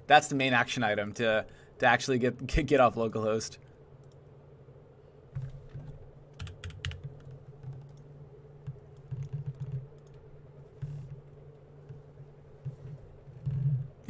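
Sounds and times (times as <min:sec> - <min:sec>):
low steady hum: 0:00.0 - 0:14.0
computer keyboard typing: 0:05.4 - 0:08.0, 0:09.0 - 0:10.2.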